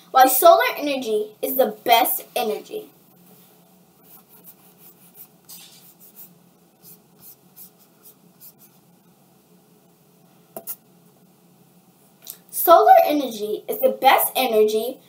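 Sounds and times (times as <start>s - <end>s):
low steady hum: 0.0s - 15.0s
scratching and rustling: 3.2s - 8.9s.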